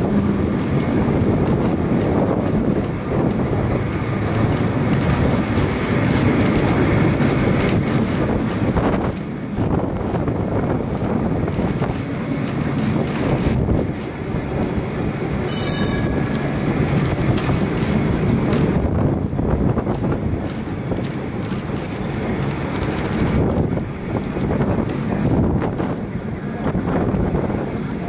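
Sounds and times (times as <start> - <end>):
tram wheels rumbling: 0.0 - 28.0
brief shrill sound: 15.5 - 16.3.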